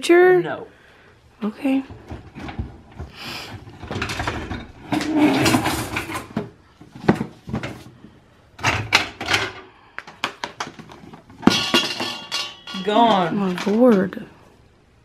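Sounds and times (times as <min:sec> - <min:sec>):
cookware knocking and clattering: 0:03.7 - 0:07.7, 0:10.7 - 0:14.0.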